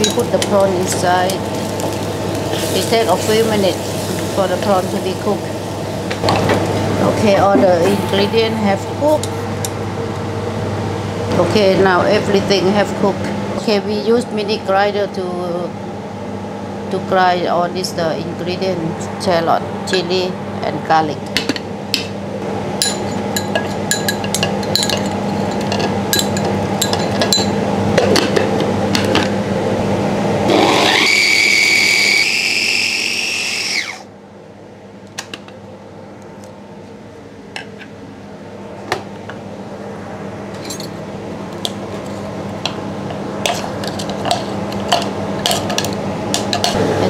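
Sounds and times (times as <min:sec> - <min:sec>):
steady hum: 0:00.0 - 0:47.0
electric chopper motor whining: 0:30.5 - 0:34.1.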